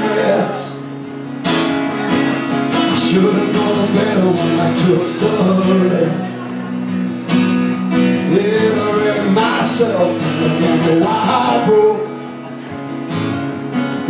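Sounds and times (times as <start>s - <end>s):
man singing: 0.0s - 0.9s, 2.7s - 6.7s, 7.9s - 12.5s
acoustic guitar strumming: 0.0s - 14.0s.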